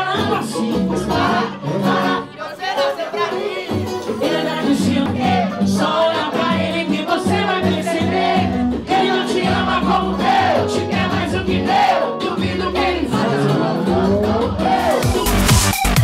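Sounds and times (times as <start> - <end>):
upbeat song with singing: 0.0 - 16.0
bass line: 4.2 - 16.0.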